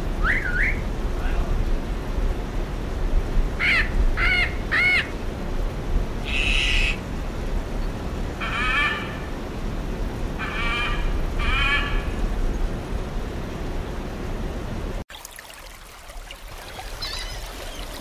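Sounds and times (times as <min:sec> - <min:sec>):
macaw squawking: 0:03.6 - 0:05.1, 0:06.3 - 0:07.0, 0:08.4 - 0:09.2, 0:10.4 - 0:12.1, 0:17.0 - 0:17.8.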